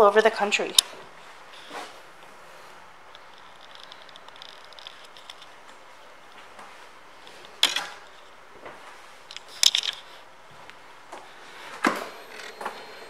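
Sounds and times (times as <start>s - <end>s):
low steady hum: 10.3s - 13.0s.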